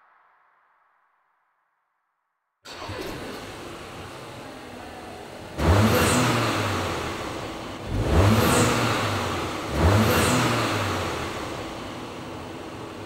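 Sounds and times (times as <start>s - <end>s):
car engine revving: 2.7s - 13.0s.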